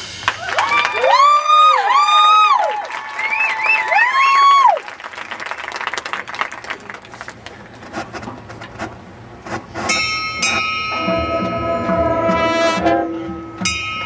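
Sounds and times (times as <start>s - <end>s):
crowd clapping: 0.2s - 7.8s
marching band playing: 8.8s - 14.0s
held brass chord: 10.0s - 14.0s
pulsing drum beat: 10.4s - 14.0s.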